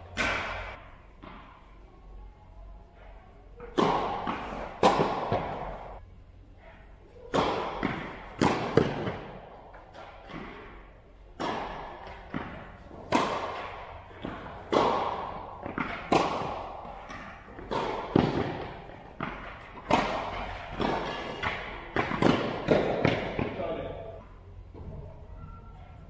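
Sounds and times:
tennis ball hit by rackets: 0:00.0 - 0:01.5, 0:03.6 - 0:06.0, 0:07.2 - 0:10.8, 0:11.4 - 0:24.0
ball bouncing on hard court: 0:03.6 - 0:06.0, 0:07.3 - 0:10.8, 0:11.4 - 0:23.8.

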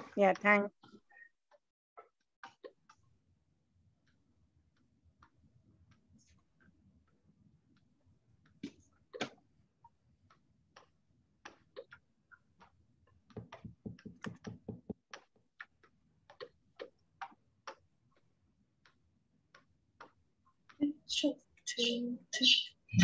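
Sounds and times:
keyboard typing: 0:13.3 - 0:17.8.

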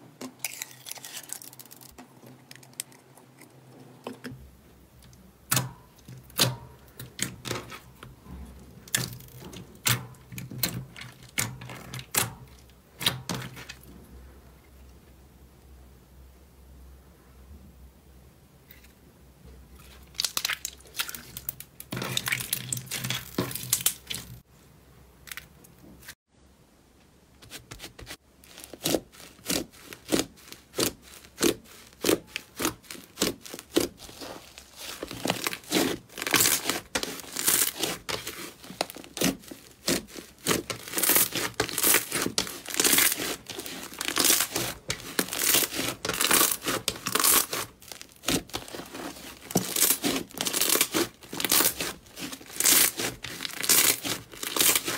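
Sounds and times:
slime squeezed and stretched: 0:28.4 - 0:54.9.

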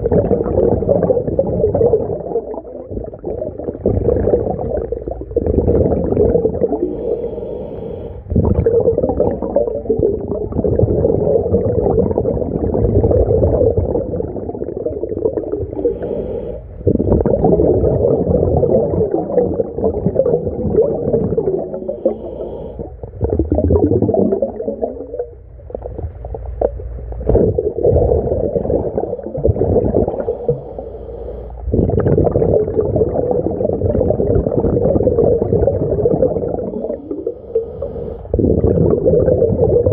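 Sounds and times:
regulator bubbles underwater: 0:00.0 - 0:39.9.

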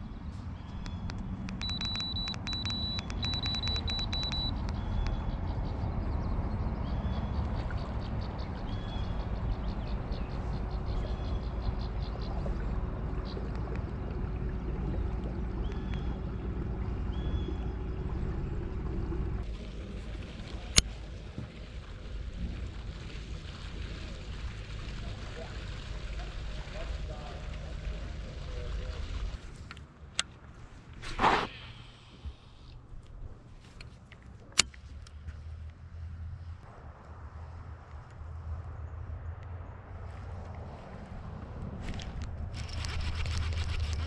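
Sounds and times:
wind and water rumble: 0:00.0 - 0:44.0
short high beeps: 0:01.6 - 0:04.6.

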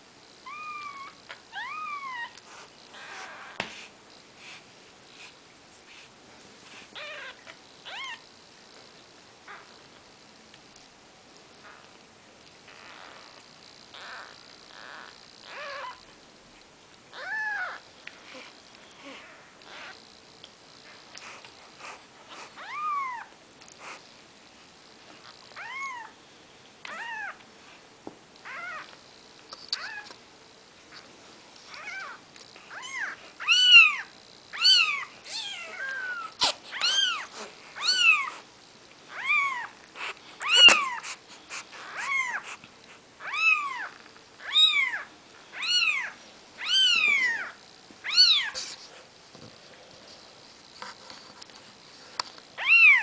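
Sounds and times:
kittens mewing: 0:31.8 - 0:38.4, 0:39.1 - 0:42.6.

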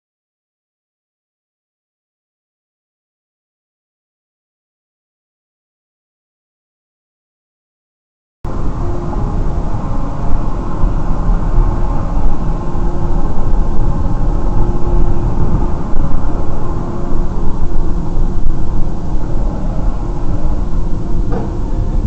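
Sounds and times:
car road and engine rumble: 0:08.5 - 0:22.0
faint steady hum: 0:08.5 - 0:22.0.

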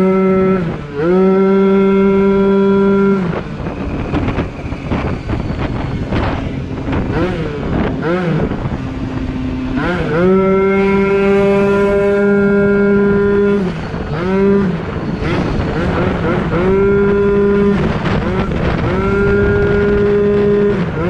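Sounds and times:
scooter engine revving: 0:00.0 - 0:21.0.

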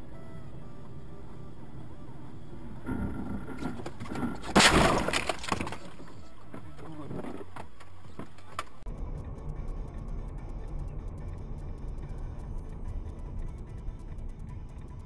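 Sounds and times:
car crash: 0:03.7 - 0:06.3.

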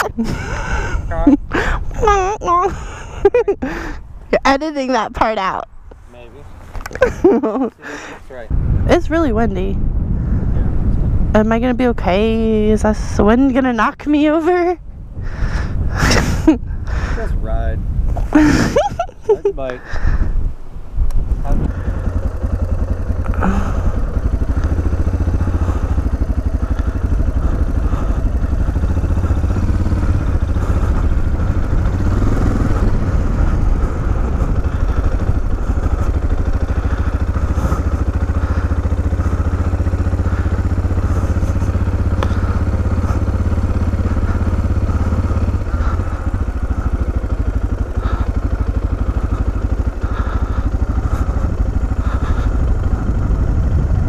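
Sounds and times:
motorcycle engine running: 0:00.0 - 0:54.0
wind noise on microphone: 0:08.4 - 0:39.4, 0:50.1 - 0:54.0.

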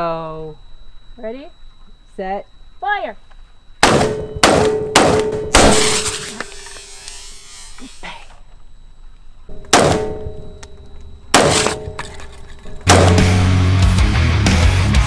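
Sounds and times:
rifle shots: 0:03.8 - 0:06.3, 0:09.7 - 0:10.2, 0:11.3 - 0:11.9, 0:12.9 - 0:13.3
cordless drill whining: 0:06.1 - 0:08.0.

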